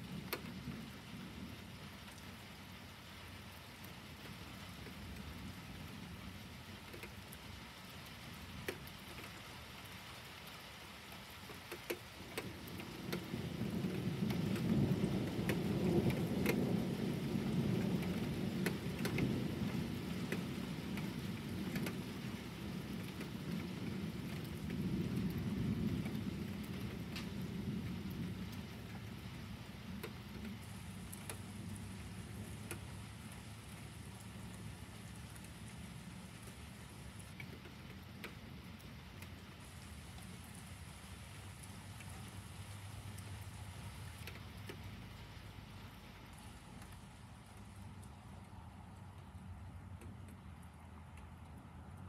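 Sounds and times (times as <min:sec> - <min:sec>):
steady rain: 0:00.0 - 0:52.0
rolling thunder: 0:12.4 - 0:37.2.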